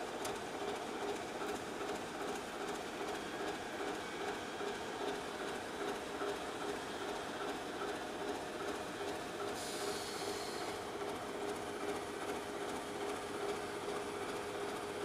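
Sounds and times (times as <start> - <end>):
diesel locomotive engine idling: 0.2 - 15.0
hiss: 9.5 - 10.8.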